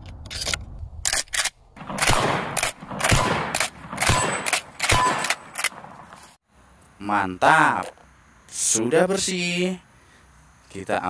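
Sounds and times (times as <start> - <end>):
shells clicking into magazine: 0.3 - 5.8
shotgun slide clacking: 0.3 - 5.9
shotgun shots: 1.8 - 6.1.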